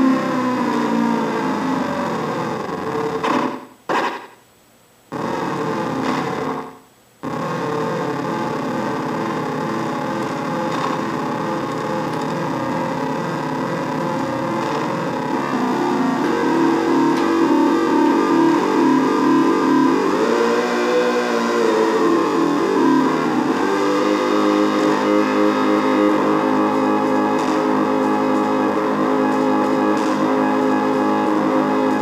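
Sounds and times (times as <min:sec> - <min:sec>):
noisy electronic drone: 0:00.0 - 0:04.4, 0:05.1 - 0:32.0
electronic clicks: 0:07.3 - 0:20.0.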